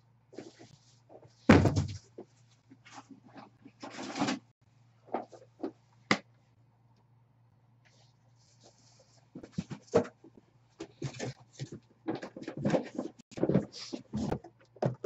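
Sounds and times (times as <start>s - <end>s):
cardboard boxes knocking: 1.5s - 2.0s
faint steady hum: 4.6s - 12.2s.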